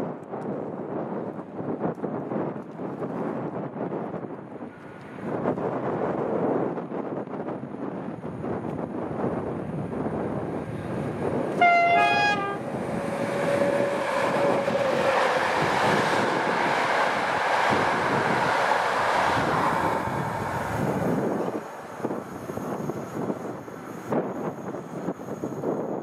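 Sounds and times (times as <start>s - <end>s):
train wheels on rail: 0.1s - 26.0s
two-tone locomotive horn: 11.4s - 16.6s.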